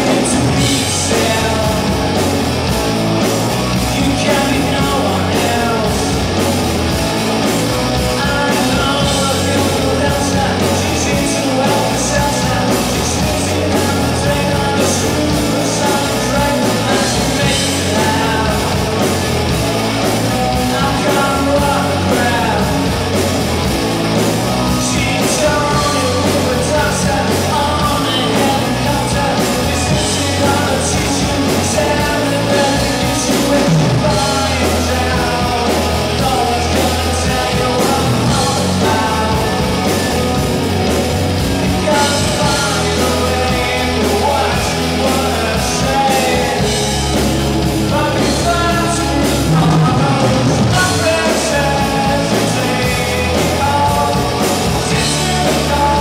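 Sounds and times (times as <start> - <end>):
man singing into a microphone: 0.0 - 2.4, 3.7 - 6.5, 7.8 - 23.2, 24.4 - 41.0, 41.6 - 56.0
rock band playing: 0.0 - 56.0.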